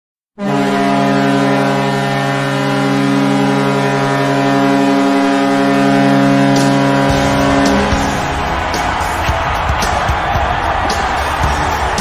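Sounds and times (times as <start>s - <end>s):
deep goal horn blast: 0.4s - 12.0s
noisy rumble: 5.4s - 12.0s.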